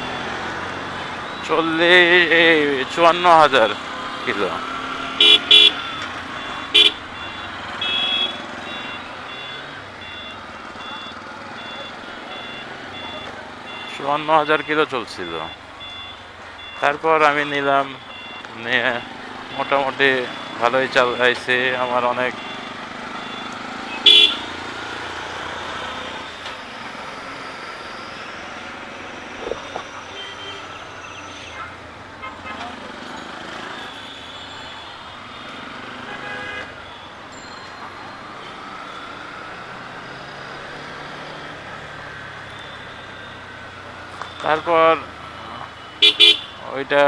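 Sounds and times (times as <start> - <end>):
motorcycle engine: 0.0 - 13.9, 18.1 - 30.2
street traffic: 0.0 - 47.0
vehicle horn toot: 5.2 - 5.9, 6.6 - 7.0, 7.8 - 10.2, 23.9 - 24.5, 30.1 - 31.6, 36.0 - 36.8, 45.9 - 46.6
electronic two-tone beeps: 5.7 - 13.9, 15.5 - 16.8, 18.0 - 18.5.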